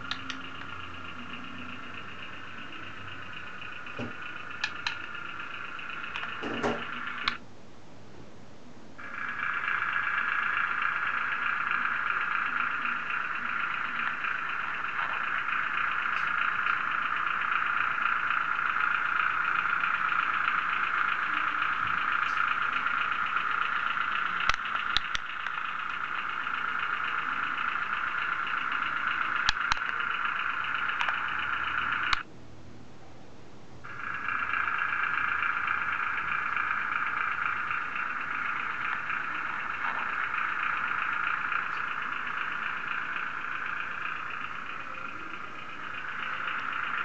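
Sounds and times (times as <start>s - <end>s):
mechanical buzz with rattling: 0.0s - 7.4s, 9.0s - 32.3s, 33.8s - 47.0s
sharp clicks: 0.0s - 7.4s, 9.0s - 32.3s.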